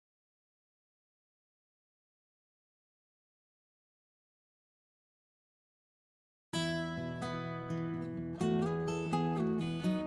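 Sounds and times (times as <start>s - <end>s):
strummed acoustic guitar chords: 6.6s - 10.0s.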